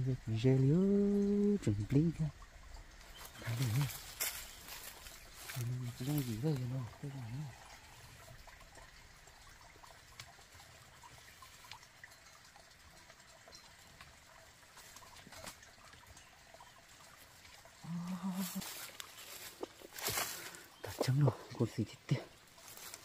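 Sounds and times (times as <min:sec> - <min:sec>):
man humming: 0:00.0 - 0:02.3, 0:03.4 - 0:03.9, 0:17.8 - 0:18.8
rustling of dry leaves: 0:02.8 - 0:08.4, 0:13.5 - 0:23.0
twigs clicking: 0:03.0 - 0:06.3.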